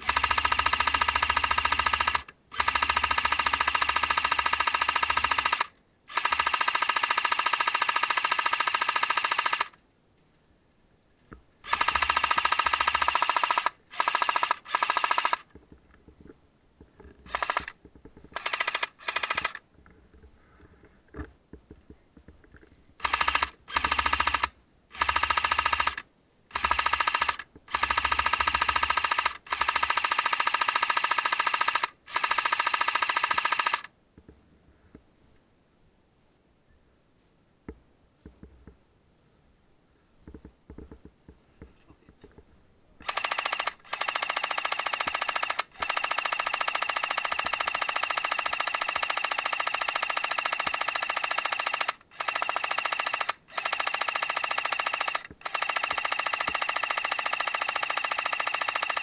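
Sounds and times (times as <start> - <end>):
airsoft gun firing bursts: 0.0 - 9.8, 11.6 - 15.5, 17.3 - 17.7, 18.3 - 19.6, 23.0 - 33.9, 43.0 - 59.0.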